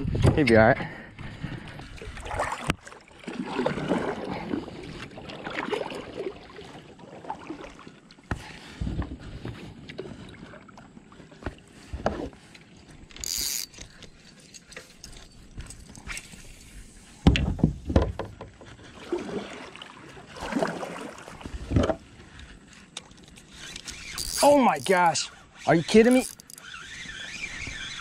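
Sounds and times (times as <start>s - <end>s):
knocks and rubbing on plastic kayak: 17.2s - 18.7s.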